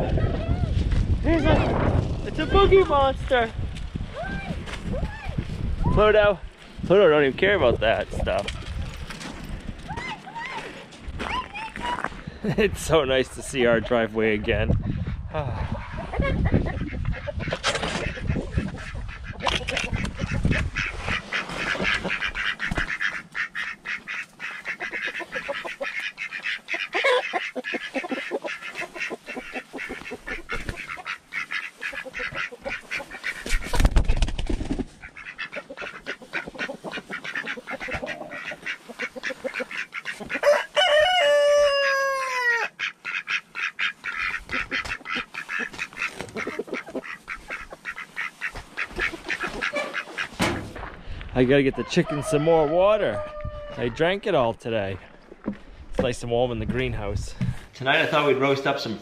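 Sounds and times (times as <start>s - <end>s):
poultry clucking: 13.2s - 54.3s.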